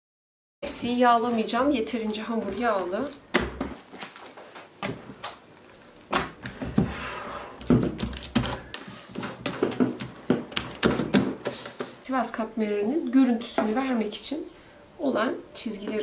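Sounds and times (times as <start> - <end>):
palms rubbing dough: 0.9 - 12.0.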